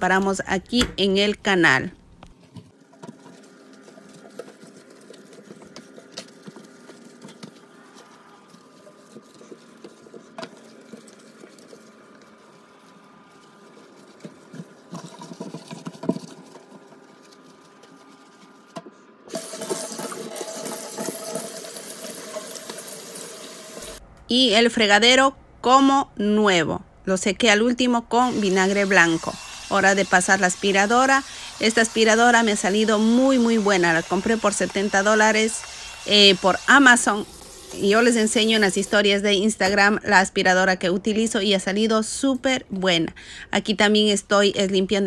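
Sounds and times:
water running into sink: 0:19.3 - 0:24.0.

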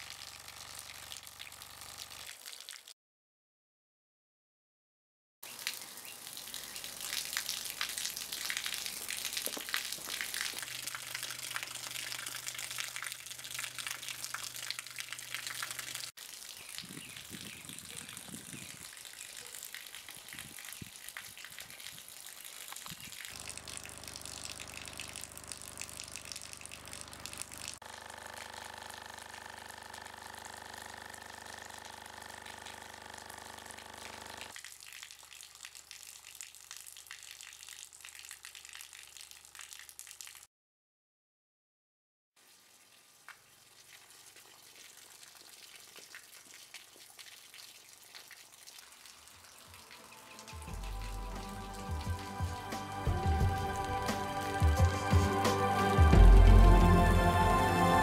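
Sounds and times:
water pouring and splashing: 0:00.0 - 0:03.0, 0:05.4 - 0:27.8, 0:34.0 - 0:40.5, 0:42.4 - 0:54.7.

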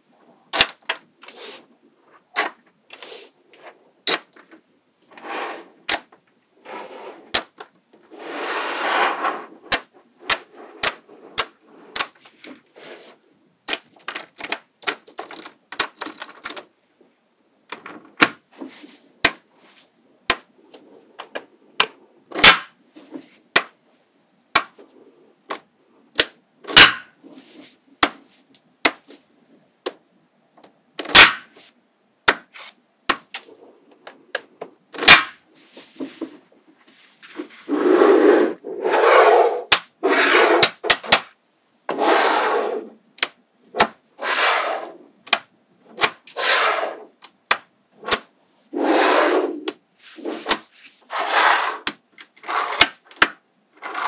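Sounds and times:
loose balls rattling: 0:13.7 - 0:16.7.

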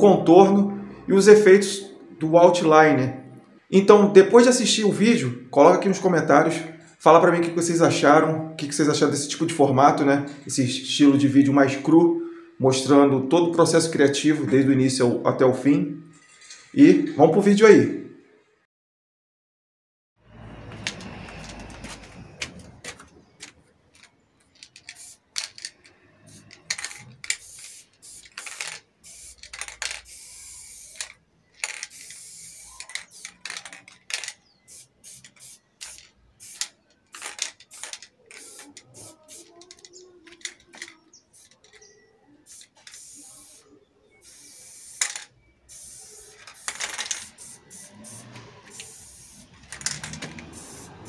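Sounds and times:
spray paint can hissing: 0:24.7 - 0:25.6, 0:26.2 - 0:40.8, 0:41.4 - 0:41.6, 0:42.5 - 0:51.0.

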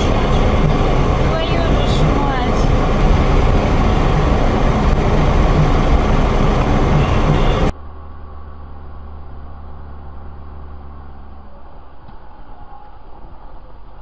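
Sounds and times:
loud road noise: 0:00.0 - 0:14.0
vehicle interior engine drone: 0:00.0 - 0:14.0.

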